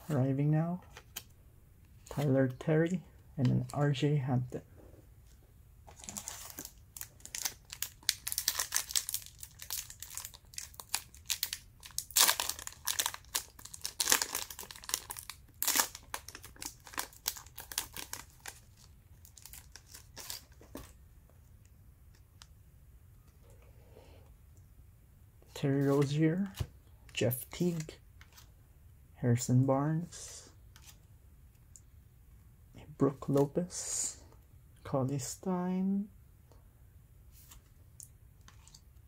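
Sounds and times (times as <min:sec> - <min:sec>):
wrapper tearing and crinkling: 0:06.0 - 0:20.5.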